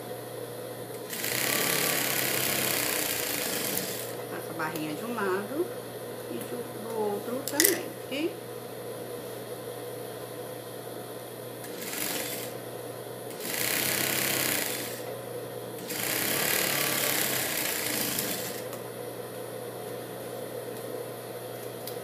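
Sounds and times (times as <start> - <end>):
sewing machine stitching: 1.1 - 4.2, 11.6 - 12.6, 13.4 - 15.1, 15.8 - 18.7
steady low hum: 3.8 - 13.4.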